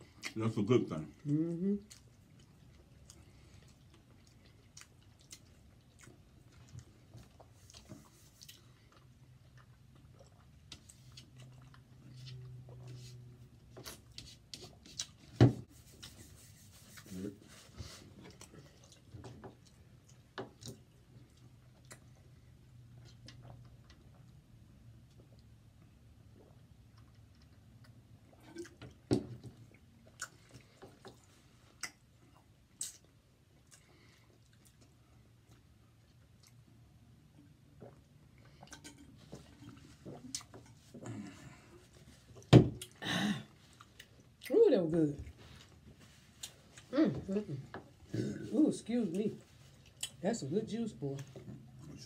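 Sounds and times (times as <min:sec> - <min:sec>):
small clicks and mouth sounds: 0:18.2 - 0:24.4, 0:25.0 - 0:36.7, 0:49.7 - 0:50.2.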